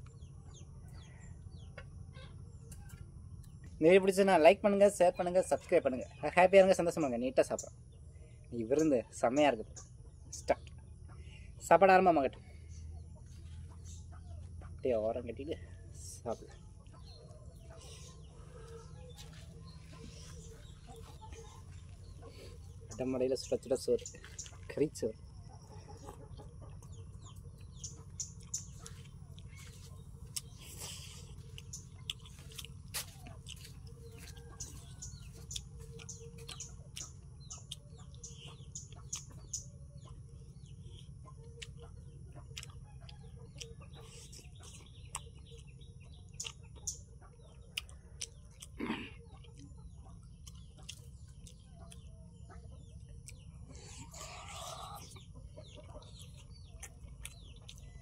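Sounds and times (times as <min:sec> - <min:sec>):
birds chirping: 0:00.0 - 0:58.0
chicken clucking: 0:16.2 - 0:58.0
chewing and lip smacks: 0:25.6 - 0:52.2, 0:52.8 - 0:58.0.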